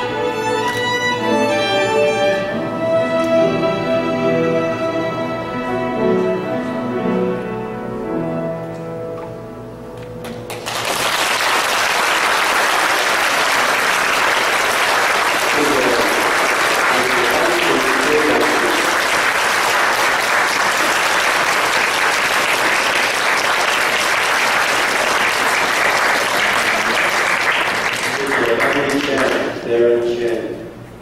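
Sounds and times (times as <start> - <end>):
string ensemble playing: 0.0 - 9.3, 12.4 - 29.8
audience applauding: 10.2 - 29.6.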